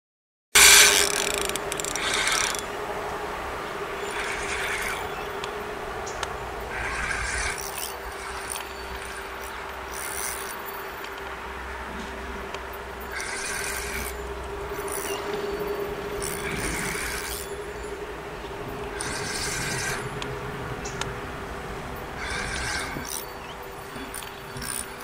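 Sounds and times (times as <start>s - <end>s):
spinning reel winding: 0.6s - 2.7s, 4.0s - 5.2s, 6.7s - 11.1s, 13.1s - 17.6s, 19.0s - 20.0s, 22.2s - 23.3s, 24.0s - 25.0s
steady hum: 0.6s - 25.0s.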